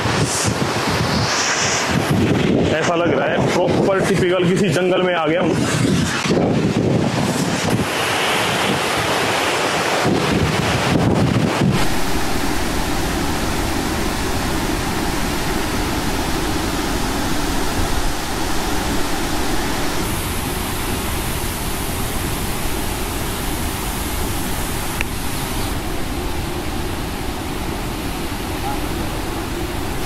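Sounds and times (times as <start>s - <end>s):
wind on microphone: 0.0s - 30.0s
waterfall rushing: 7.1s - 30.0s.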